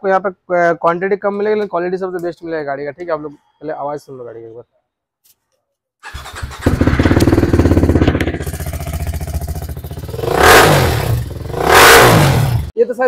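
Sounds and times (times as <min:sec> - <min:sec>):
motorcycle engine idling and revving: 0:06.0 - 0:12.7.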